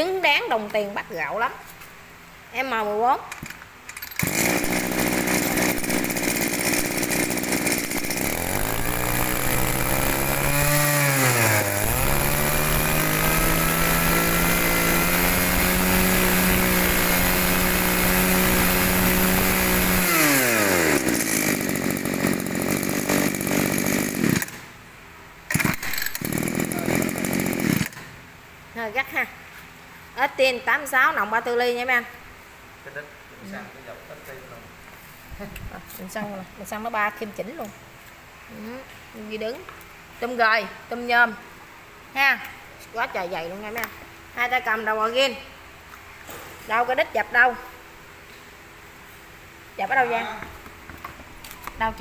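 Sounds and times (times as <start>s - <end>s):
brush cutter engine revving: 4.1s - 24.7s, 25.5s - 28.1s.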